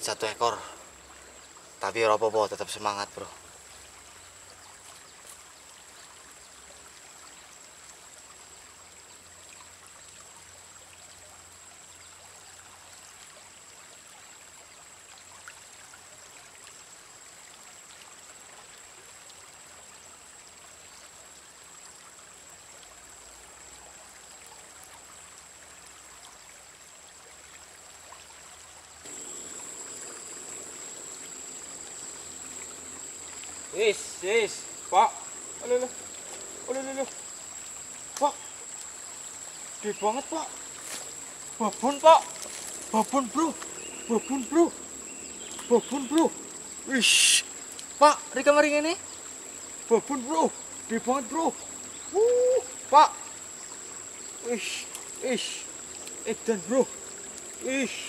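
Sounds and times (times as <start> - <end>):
river water flowing: 0.0 - 58.0.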